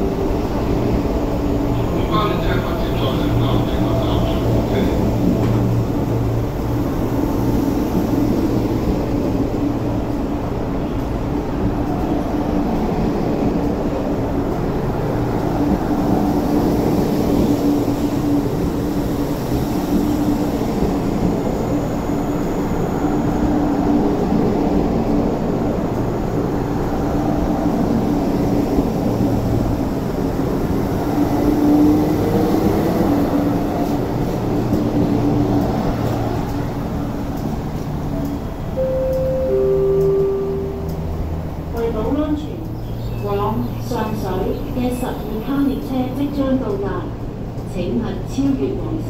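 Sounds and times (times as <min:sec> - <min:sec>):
train wheels rumbling on rails: 0:00.0 - 0:49.0
two-note tone: 0:38.8 - 0:41.8.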